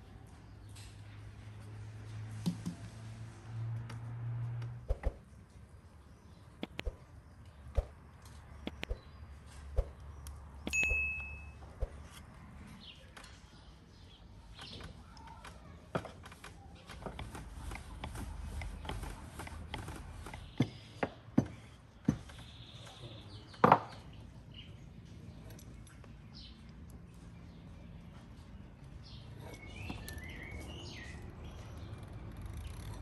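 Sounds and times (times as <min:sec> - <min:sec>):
short high ding: 0:10.7 - 0:11.6
rolling pin rolling dough: 0:16.0 - 0:20.6.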